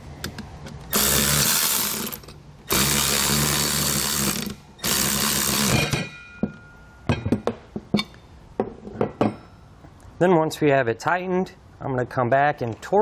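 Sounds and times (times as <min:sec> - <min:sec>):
cordless ratchet running: 0:00.9 - 0:05.9.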